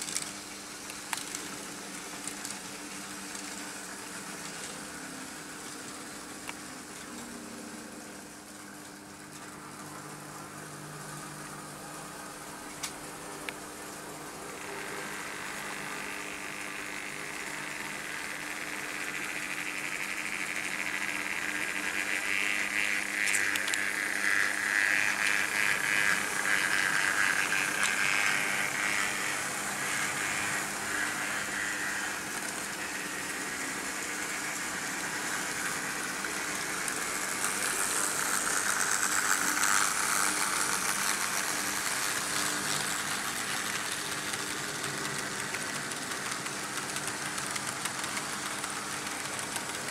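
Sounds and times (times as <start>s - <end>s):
model train wheels rattling on rails: 0.0s - 3.6s, 14.6s - 49.9s
constant low hum: 0.0s - 49.9s.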